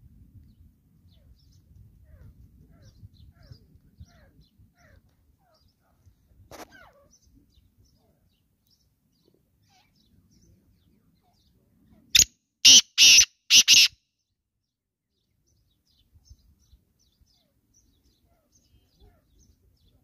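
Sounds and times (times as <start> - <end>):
bird calling harsh rasping notes: 12.2 - 14.0.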